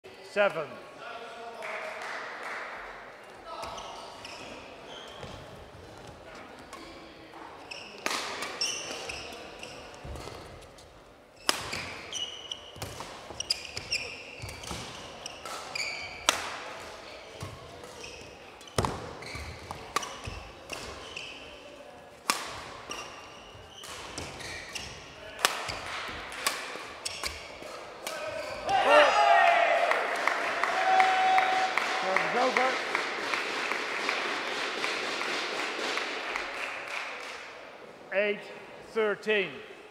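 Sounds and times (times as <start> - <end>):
shoes squeaking on court floor: 3.5 - 21.8, 22.5 - 28.8
racket striking shuttlecock: 11.4 - 12.0, 12.8 - 16.6, 22.2 - 23.2, 23.8 - 28.2.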